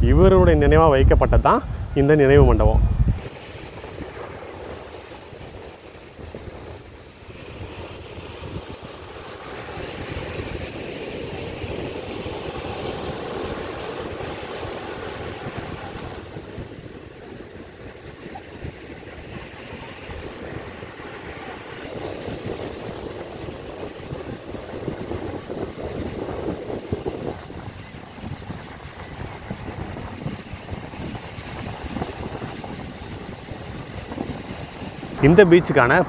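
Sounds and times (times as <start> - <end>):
wind on microphone: 0.0 - 36.0
sea waves breaking on shore: 1.4 - 36.0.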